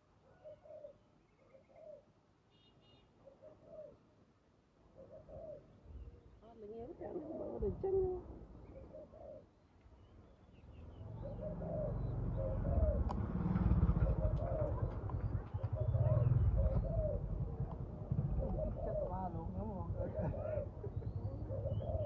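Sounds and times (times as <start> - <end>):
doves cooing: 0.0 - 2.1, 3.2 - 4.0, 4.9 - 9.6, 10.9 - 22.0
low rumble: 11.0 - 21.9.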